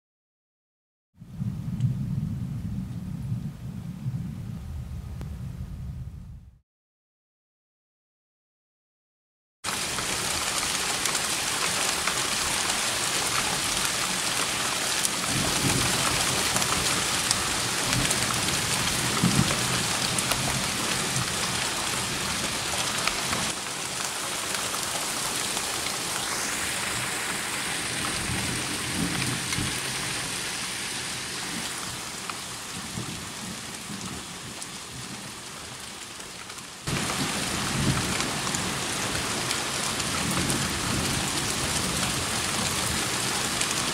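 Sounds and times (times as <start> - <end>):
low thunder rumbling: 1.2 - 6.6
steady rain hissing: 9.7 - 43.9.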